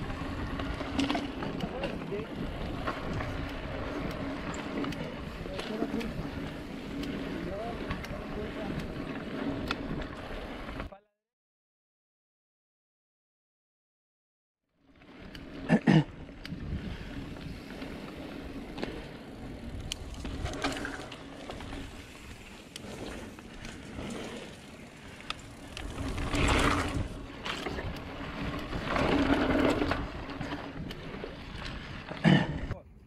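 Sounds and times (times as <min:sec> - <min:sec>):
bike rattling over bumps: 0:00.0 - 0:10.9, 0:14.8 - 0:32.7
bike tyres rolling on dirt: 0:00.0 - 0:10.9, 0:14.8 - 0:32.8.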